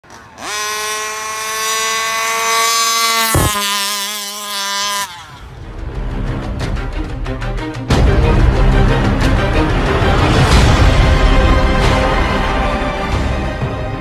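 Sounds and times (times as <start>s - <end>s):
two-stroke engine at high revs: 0.0s - 5.7s
intro music: 5.6s - 14.0s.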